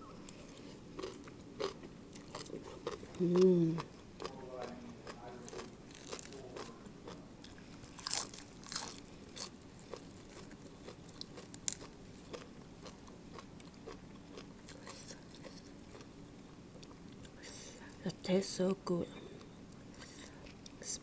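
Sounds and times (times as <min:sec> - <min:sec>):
crunching of salad being eaten: 0:00.2 - 0:16.1.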